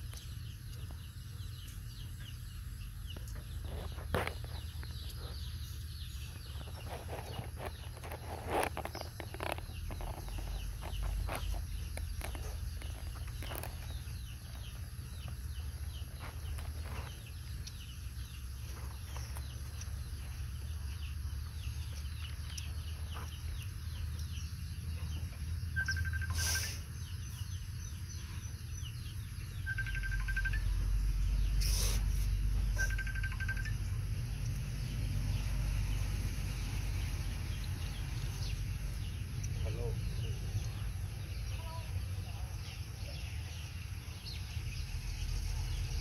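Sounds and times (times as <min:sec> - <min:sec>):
birds chirping and calling: 0:00.0 - 0:46.0.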